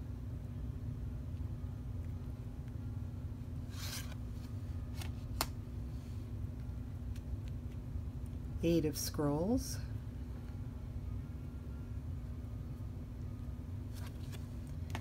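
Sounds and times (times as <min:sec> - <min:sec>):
steady low hum: 0:00.0 - 0:15.0
card sliding against deck: 0:03.6 - 0:05.5.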